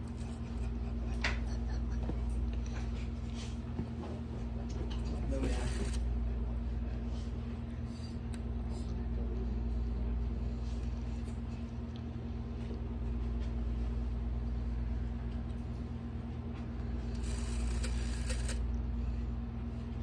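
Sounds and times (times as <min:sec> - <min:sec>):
dial whirring back: 0:05.3 - 0:06.2, 0:17.0 - 0:18.8
rotary dial ticking: 0:17.2 - 0:18.7.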